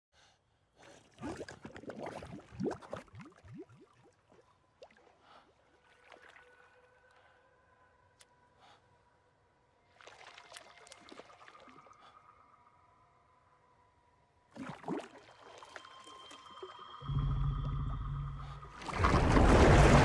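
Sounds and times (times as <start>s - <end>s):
bubbles gurgling in water: 1.2s - 3.9s.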